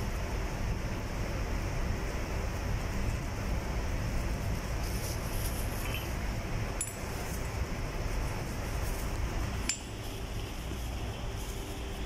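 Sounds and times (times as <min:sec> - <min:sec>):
low machinery drone: 0:00.0 - 0:12.0
metal tool clinking on metal: 0:05.8 - 0:06.2.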